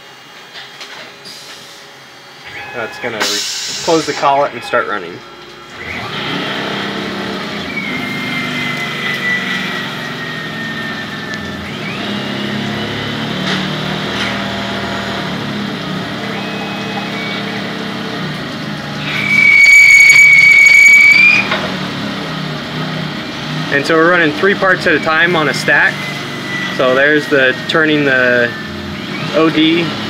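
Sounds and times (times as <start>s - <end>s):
lathe hum: 5.6s - 24.3s
coolant spraying: 5.7s - 30.0s
whine falling in pitch: 16.1s - 18.3s, 19.0s - 21.8s
high-pitched squeal: 16.2s - 18.0s, 19.0s - 21.6s.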